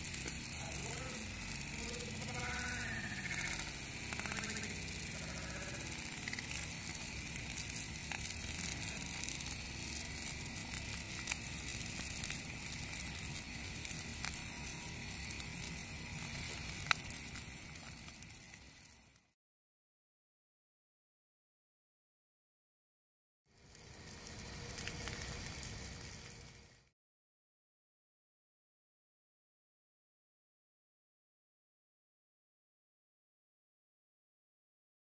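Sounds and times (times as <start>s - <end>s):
bonfire rushing: 0.0s - 19.2s, 23.6s - 26.9s
fire crackling pops: 0.0s - 19.3s, 23.6s - 26.9s.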